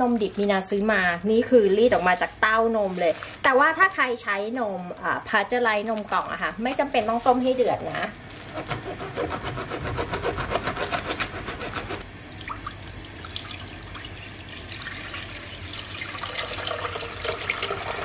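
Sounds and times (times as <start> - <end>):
plastic bag crackling: 0.0 - 4.4, 5.3 - 9.0
milk pouring into a pot: 13.0 - 18.0.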